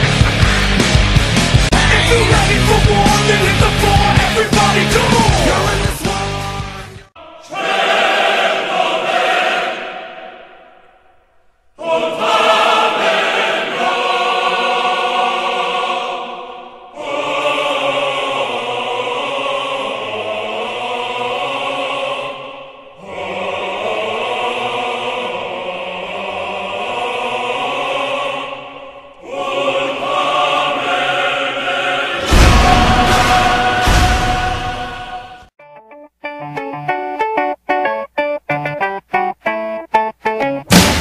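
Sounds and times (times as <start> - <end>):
choir singing held chords: 0.0 - 35.6
loud music hit: 32.2 - 35.5, 40.7 - 41.0.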